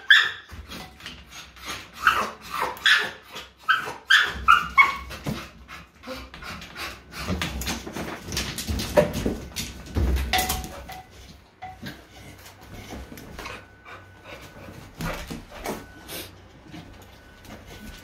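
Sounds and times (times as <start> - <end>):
dog scrambling over plastic gate: 7.2 - 11.1.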